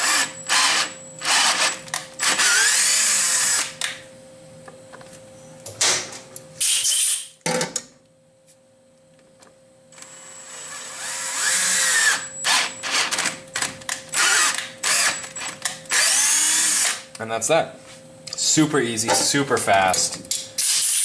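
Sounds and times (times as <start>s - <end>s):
cordless drill motor whining: 0.0s - 3.7s, 10.0s - 13.3s, 14.1s - 17.0s.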